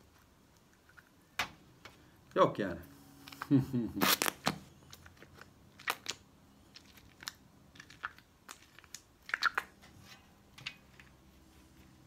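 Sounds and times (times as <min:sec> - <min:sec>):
slime squelching and popping: 0:04.0 - 0:09.8.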